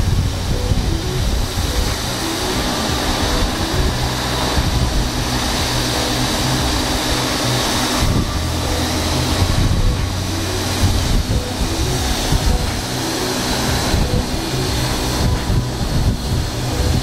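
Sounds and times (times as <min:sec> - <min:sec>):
engine humming: 0:00.0 - 0:17.0
hose jet spraying: 0:00.0 - 0:17.0
large fire burning: 0:00.0 - 0:17.0.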